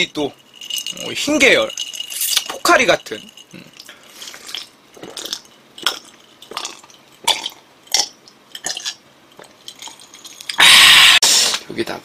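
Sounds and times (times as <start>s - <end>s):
person gulping a drink: 3.5s - 11.2s.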